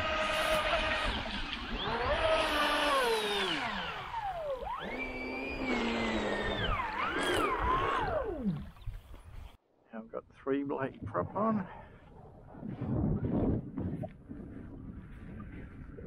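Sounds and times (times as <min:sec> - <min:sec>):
electric motor whining: 0:00.0 - 0:08.9.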